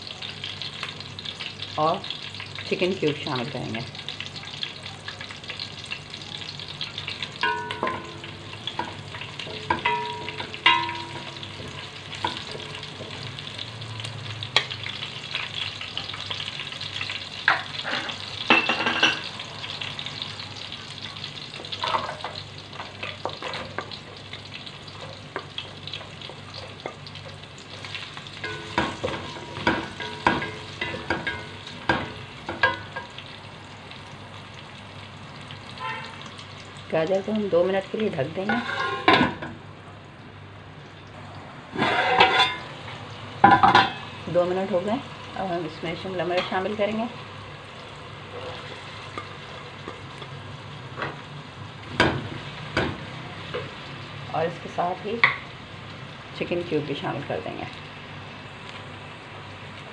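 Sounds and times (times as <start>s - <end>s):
food sizzling in hot oil: 0.0s - 59.9s
wooden spoon scraping a pot: 38.4s - 39.1s, 41.8s - 42.6s.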